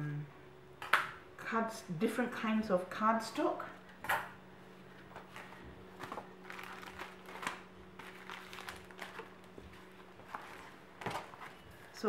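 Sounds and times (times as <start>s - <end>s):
faint steady hum: 0.0s - 12.0s
paper rustling: 5.3s - 12.0s.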